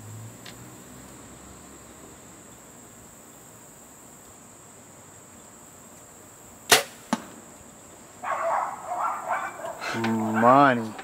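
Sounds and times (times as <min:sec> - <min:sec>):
arrow striking foam target: 0:06.7 - 0:07.4.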